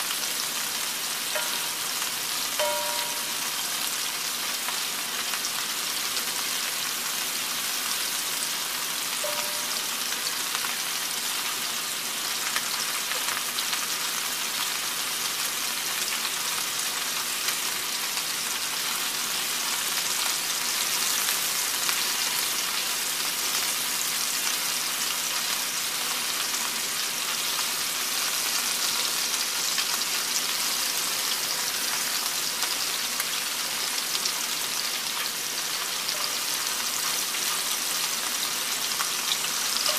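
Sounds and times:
meatballs sizzling in oil: 0:00.0 - 0:39.9.

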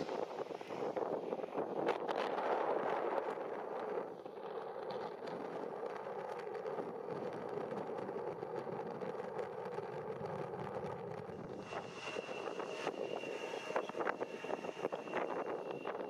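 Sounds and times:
jet engines rushing: 0:11.3 - 0:16.0.

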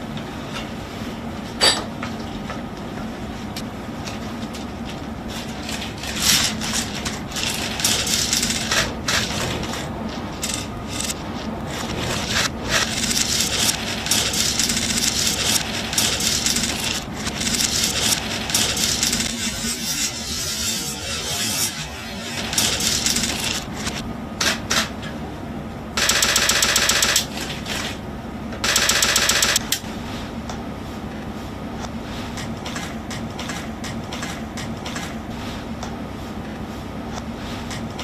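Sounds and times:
steady low hum: 0:00.0 - 0:38.0
sharp click: 0:28.6 - 0:29.8.

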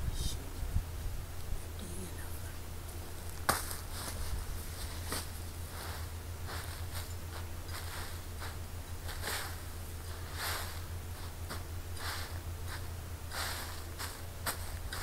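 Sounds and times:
steady low hum: 0:00.0 - 0:15.0
shovel scraping soil on tarp: 0:09.0 - 0:10.9, 0:12.0 - 0:12.4, 0:13.3 - 0:15.0.

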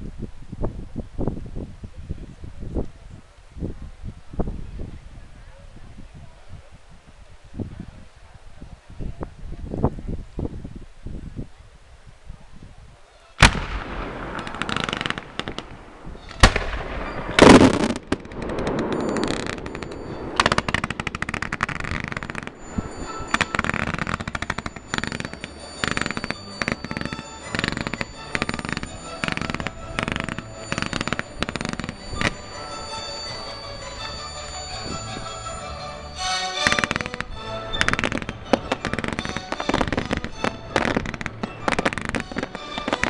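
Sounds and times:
fireworks bangs and cracks: 0:13.4 - 0:35.7, 0:36.6 - 0:43.0
music playing: 0:22.6 - 0:43.0.

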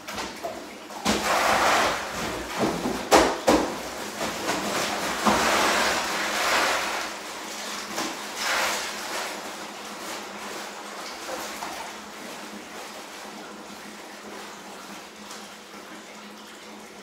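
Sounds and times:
ice pouring into water: 0:04.2 - 0:07.5.

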